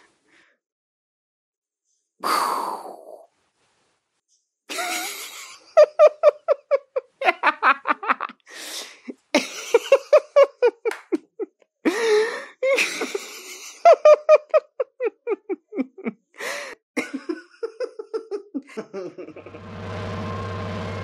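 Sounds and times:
man laughing: 4.7s - 8.4s, 9.4s - 11.5s, 12.6s - 16.2s, 17.0s - 19.6s
gasping in-breath: 11.9s - 12.6s, 16.4s - 16.8s.

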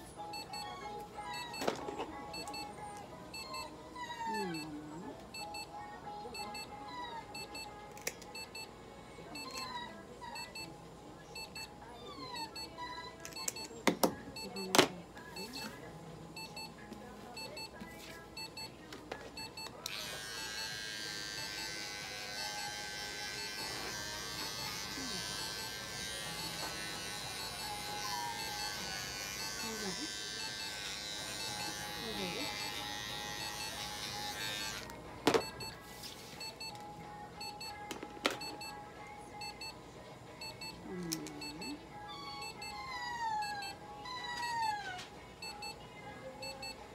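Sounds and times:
faint electronic beeping: 0.0s - 44.8s, 45.4s - 46.9s
electric pet clipper buzzing: 19.8s - 35.0s.

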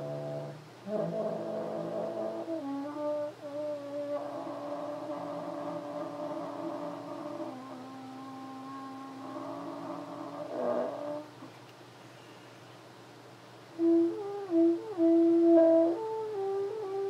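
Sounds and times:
french horn low held notes: 0.0s - 11.5s.

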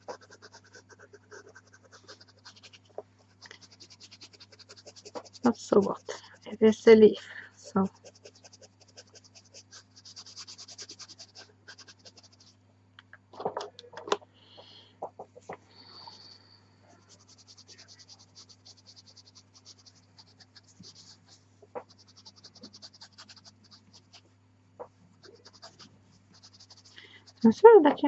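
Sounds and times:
pencil scratching on paper: 0.0s - 6.9s, 7.6s - 12.5s, 17.0s - 24.2s, 25.2s - 27.7s
faint steady hum: 0.0s - 28.0s.

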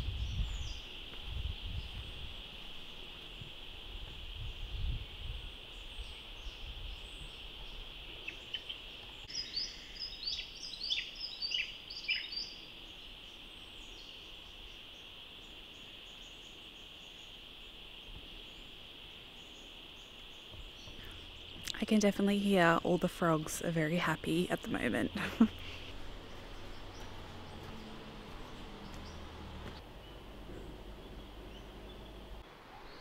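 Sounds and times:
bird chirping: 5.3s - 17.4s, 22.5s - 33.0s.

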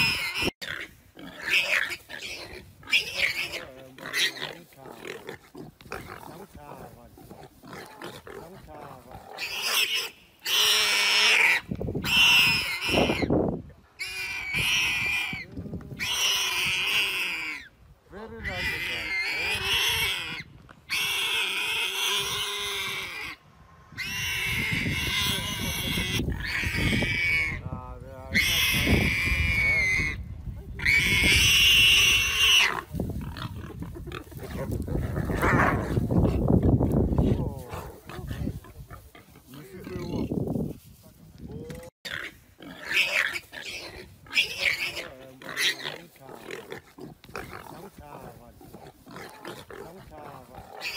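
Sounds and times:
animal squealing in distress: 0.0s - 4.4s, 9.3s - 13.3s, 14.0s - 17.7s, 18.3s - 27.7s, 28.3s - 36.6s, 42.1s - 46.0s
warthog screaming: 18.3s - 23.4s.

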